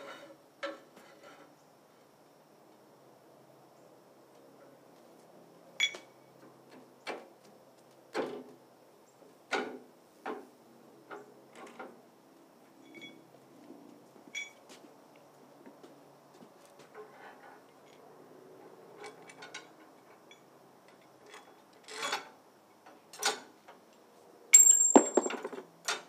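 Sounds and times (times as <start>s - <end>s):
metallic clinks and knocks: 12.8s - 13.2s, 14.3s - 14.6s, 24.6s - 26.0s
struck steel ringing: 24.6s - 25.5s.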